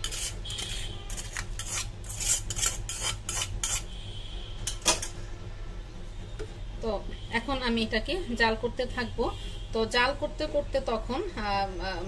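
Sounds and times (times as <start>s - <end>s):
wooden spatula scraping metal bowl: 0.0s - 3.9s.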